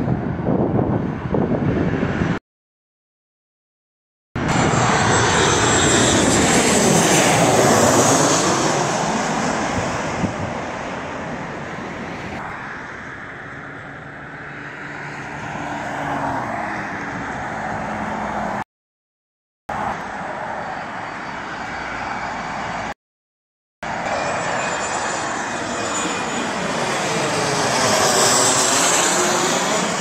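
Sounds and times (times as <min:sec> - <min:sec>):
jet airliner passing overhead: 0:00.0 - 0:02.4, 0:04.4 - 0:18.6, 0:19.7 - 0:23.0, 0:23.8 - 0:30.0
car passing: 0:05.0 - 0:18.6
steady engine noise: 0:23.8 - 0:30.0.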